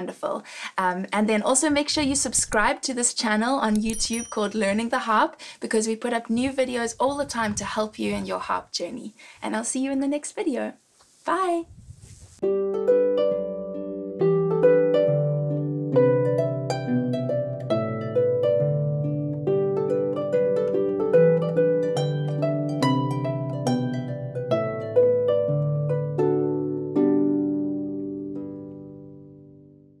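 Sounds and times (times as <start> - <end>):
harp plucked notes: 12.4 - 29.9.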